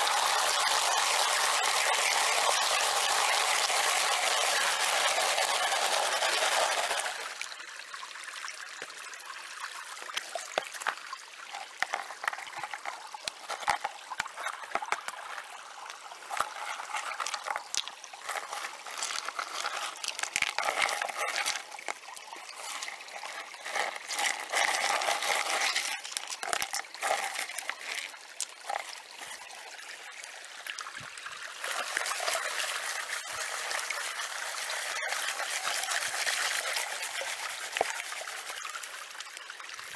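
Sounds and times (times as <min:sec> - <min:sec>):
creek trickling over rocks: 0:00.0 - 0:39.9
water sloshing in pan: 0:09.8 - 0:30.3
stones clicking in plastic pan: 0:10.0 - 0:28.9.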